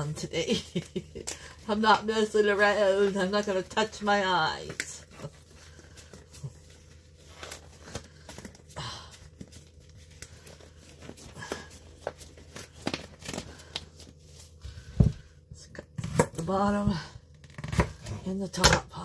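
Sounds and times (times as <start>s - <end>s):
disposable gloves crinkling: 0.5s - 14.9s.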